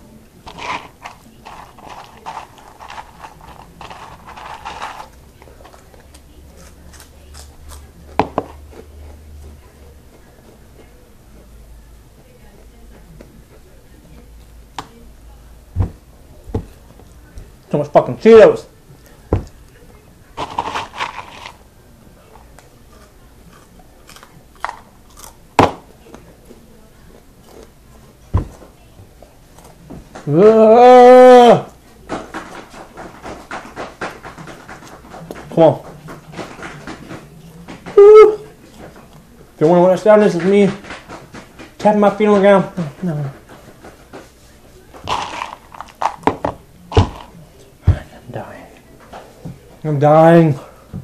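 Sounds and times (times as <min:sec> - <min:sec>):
crunching cheese snacks: 0:00.5 - 0:07.9, 0:20.4 - 0:21.6, 0:22.9 - 0:25.4, 0:45.1 - 0:46.3.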